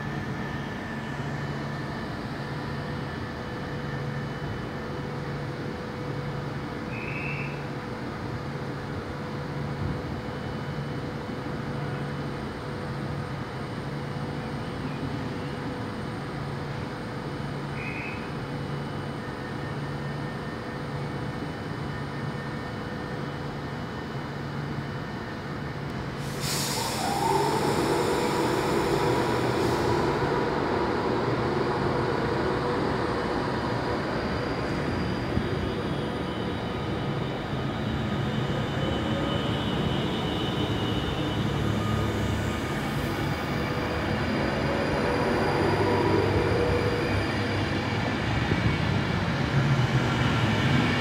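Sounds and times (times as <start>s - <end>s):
train whine: 0.0s - 51.0s
electric train humming: 18.6s - 51.0s
loud hiss: 26.2s - 32.1s.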